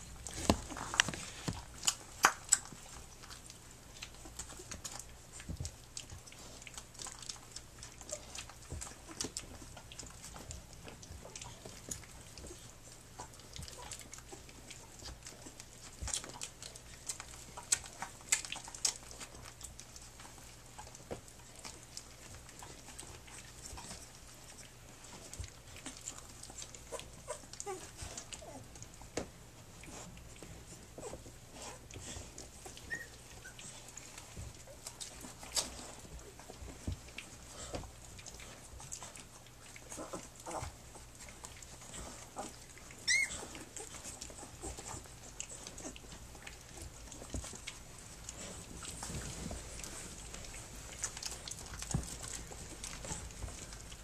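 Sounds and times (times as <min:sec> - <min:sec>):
puppies nursing wet sucking: 0:00.0 - 0:54.0
puppy squeaks: 0:32.8 - 0:33.7, 0:43.0 - 0:43.7.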